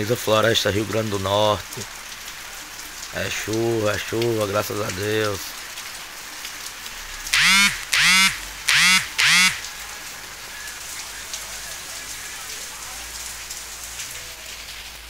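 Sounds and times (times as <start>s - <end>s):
rain falling: 0.0s - 15.0s
animal calling loudly: 7.3s - 9.7s.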